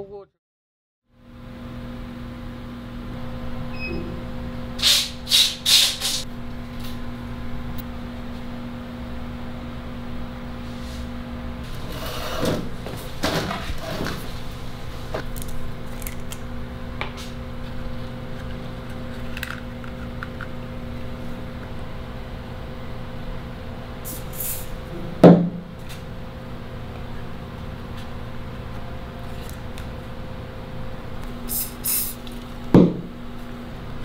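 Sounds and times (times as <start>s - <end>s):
steady low hum: 1.2s - 34.0s
short hissing bursts: 4.8s - 6.2s, 24.1s - 24.7s, 31.5s - 32.2s.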